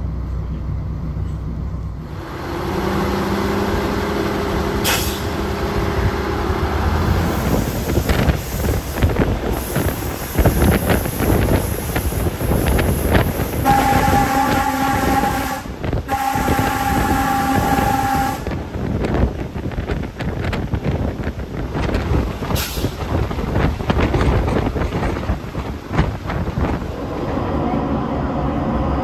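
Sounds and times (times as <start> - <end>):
railbus engine droning: 0.0 - 29.0
railbus horn chord: 13.6 - 18.8
wheels clattering over rail joints: 18.5 - 27.7.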